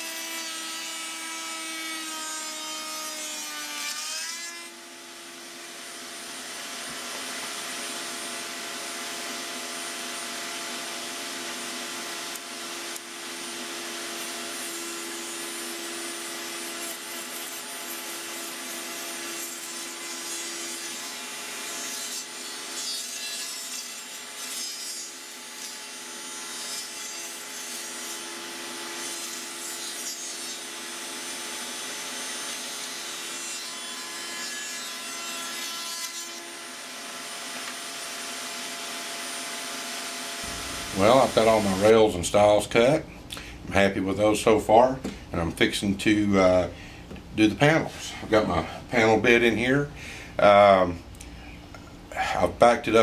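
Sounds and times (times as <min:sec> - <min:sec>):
router bit cutting wood: 0:00.0 - 0:42.7
router motor whine: 0:35.0 - 0:41.9.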